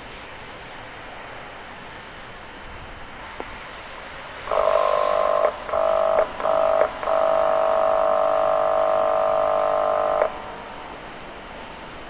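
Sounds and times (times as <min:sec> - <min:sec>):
train horn blasts: 0:04.4 - 0:10.8.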